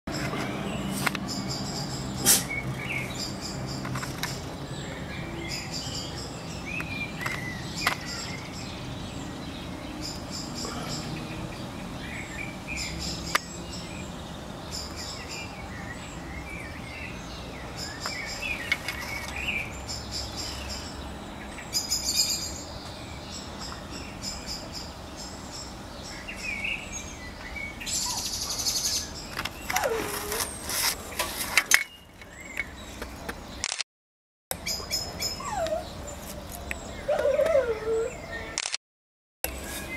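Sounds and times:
rustling and clicks: 3.8 - 4.5.

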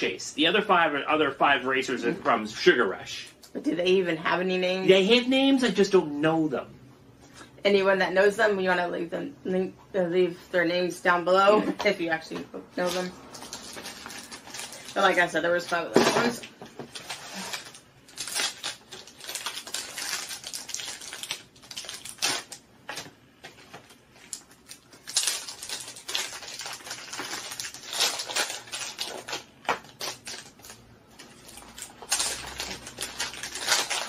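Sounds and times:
packaging crinkling and tearing: 12.8 - 15.3, 16.8 - 34.0.

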